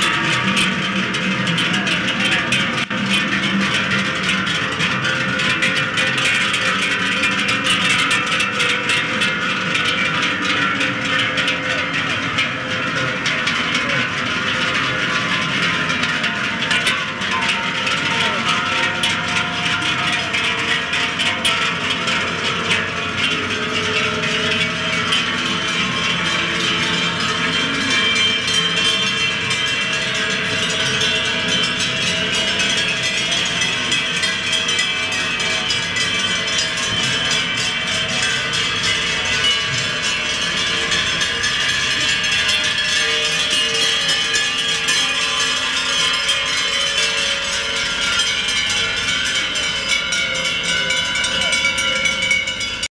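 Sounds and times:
cowbells clanging: 0.0s - 52.9s.

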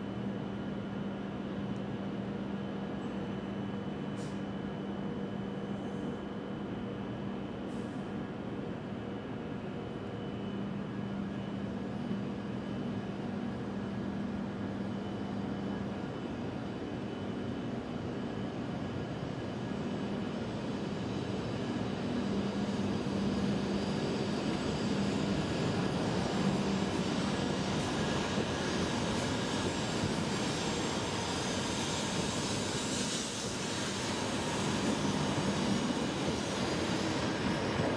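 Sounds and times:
train accelerating past: 22.4s - 37.9s.

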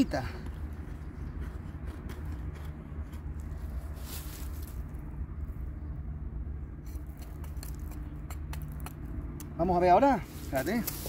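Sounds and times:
steady low hum: 0.0s - 11.0s
knife scraping wood: 0.4s - 4.3s.

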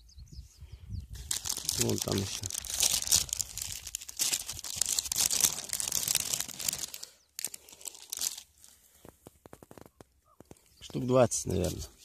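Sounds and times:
plastic bag crinkling: 1.2s - 10.0s.

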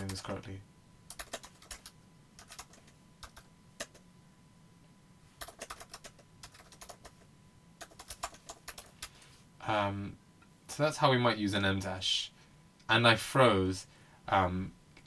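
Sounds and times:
typing on computer keyboard: 1.1s - 4.0s, 5.4s - 7.2s, 7.8s - 9.1s.

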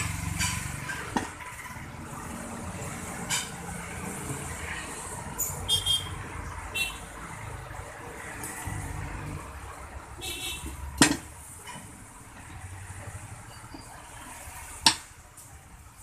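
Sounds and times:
sharp metallic knocks: 11.0s - 11.8s.

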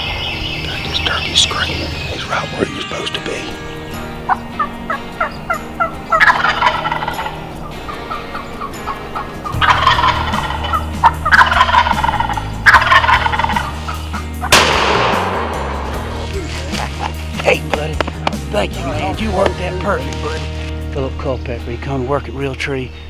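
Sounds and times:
turkey yelping calls: 4.2s - 14.6s
turkey gobbling: 4.2s - 14.9s.

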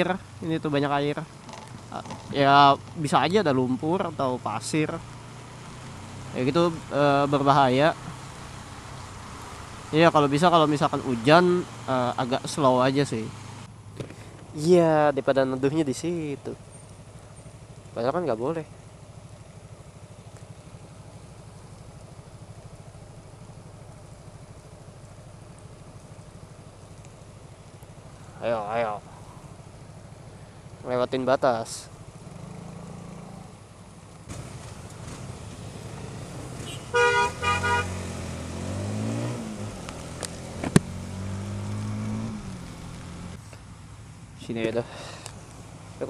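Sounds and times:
motorcycle engine idling: 0.0s - 38.0s, 39.5s - 46.0s
vehicle horn honking: 36.6s - 38.0s.

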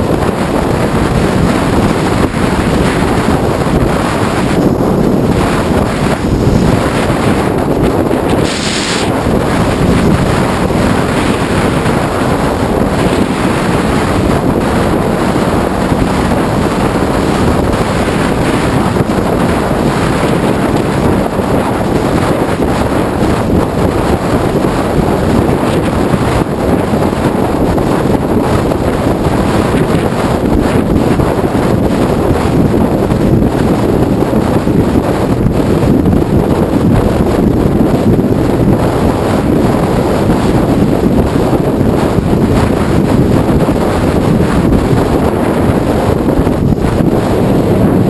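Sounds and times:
wind rush on microphone: 0.0s - 48.0s.

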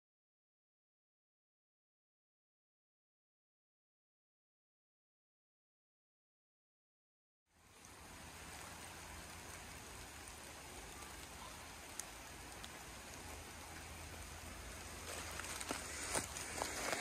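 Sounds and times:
light rain falling: 7.5s - 17.0s
faint drip: 7.7s - 17.0s.

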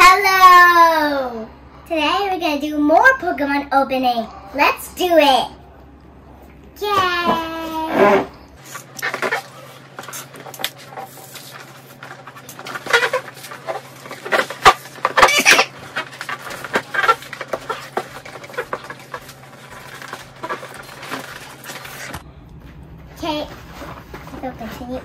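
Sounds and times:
packaging crinkling and tearing: 8.6s - 22.2s.

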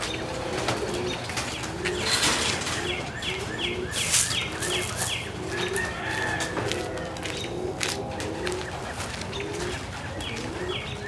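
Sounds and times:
pigeons cooing: 0.0s - 11.0s
high falling bird chirps: 2.0s - 5.4s.

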